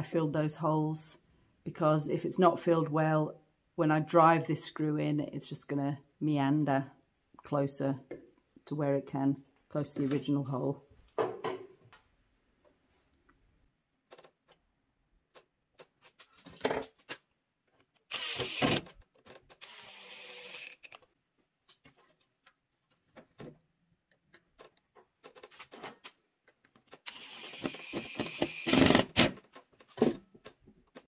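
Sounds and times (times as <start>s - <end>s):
cordless drill driving screws: 18.1s - 18.9s, 19.6s - 21.0s, 27.0s - 29.4s.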